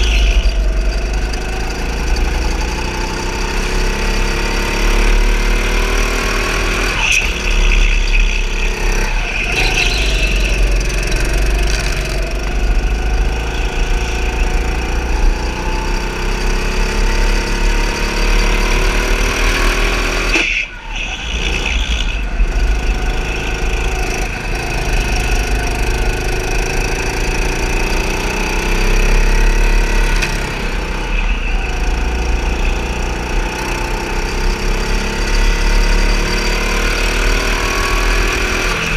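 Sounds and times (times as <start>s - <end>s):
go-kart motor: 0.0s - 38.9s
tyre squeals: 6.9s - 11.6s.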